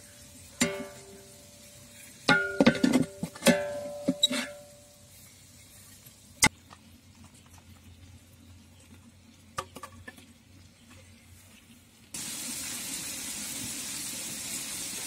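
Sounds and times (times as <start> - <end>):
fish sizzling in oil: 0.0 - 2.6, 12.1 - 15.0.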